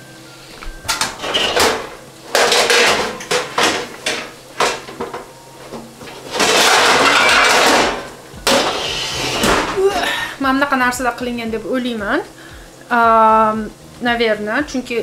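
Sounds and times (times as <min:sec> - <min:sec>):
utensil scraping cooking pot: 0:05.7 - 0:09.8
frying hiss: 0:08.1 - 0:15.0.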